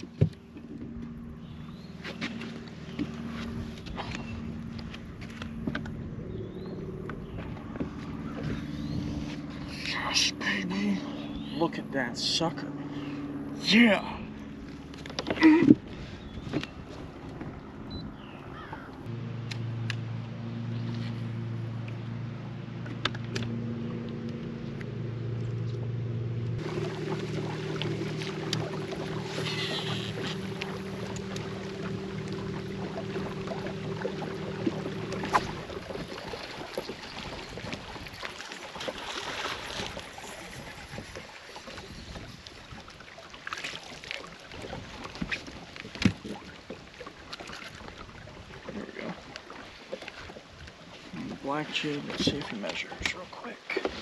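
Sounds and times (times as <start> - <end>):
water noise: 0.0 - 54.0
wind: 0.0 - 54.0
electric motor humming: 26.6 - 35.3.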